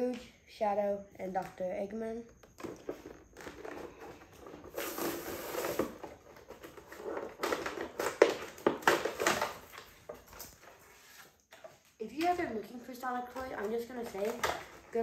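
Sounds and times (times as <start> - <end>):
plastic packaging crinkling: 2.6 - 12.0, 13.2 - 15.0.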